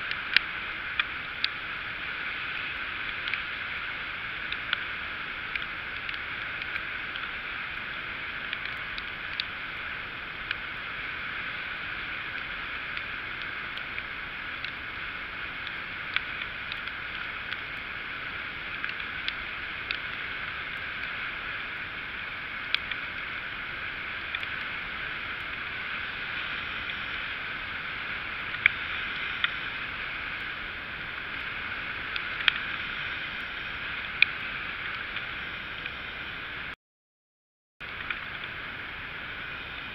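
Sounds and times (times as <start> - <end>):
moped riding on wet road: 0.0 - 36.8, 37.8 - 39.9.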